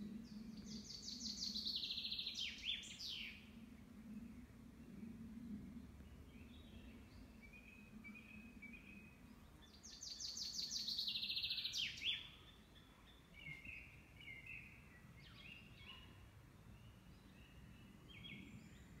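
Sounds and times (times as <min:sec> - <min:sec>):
songbird singing loudly: 0:09.7 - 0:12.5.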